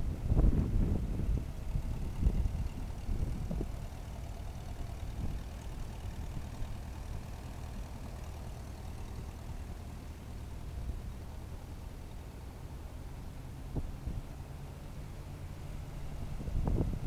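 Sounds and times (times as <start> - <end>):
wind on microphone: 0.0 - 3.8, 16.0 - 17.0
tractor engine running: 0.0 - 17.0.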